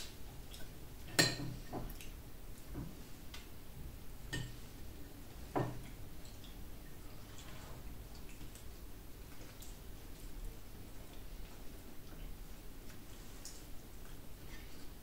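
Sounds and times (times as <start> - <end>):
cutlery clinking on a plate: 1.1 - 1.6.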